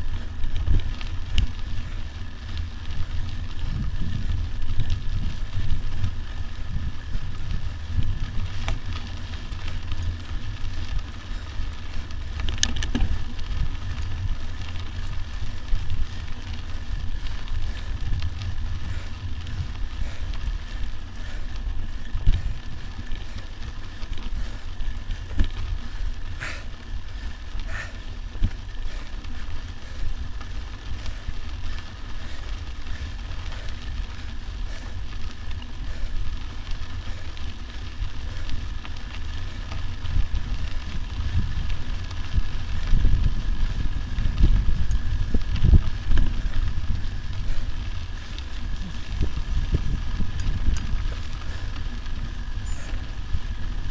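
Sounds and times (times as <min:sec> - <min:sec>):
bike tyres crackling on gravel: 0:00.0 - 0:53.9
low microphone rumble: 0:00.0 - 0:53.9
bike clicks and knocks: 0:07.4 - 0:10.2, 0:12.0 - 0:14.6.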